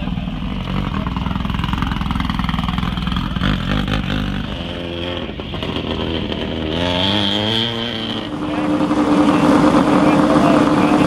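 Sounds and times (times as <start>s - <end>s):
buggy engine revving: 0.0s - 11.0s.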